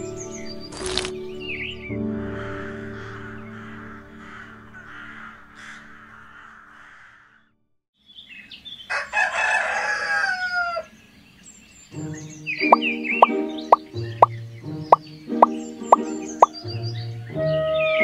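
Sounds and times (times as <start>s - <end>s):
rooster crowing: 8.9s - 11.0s.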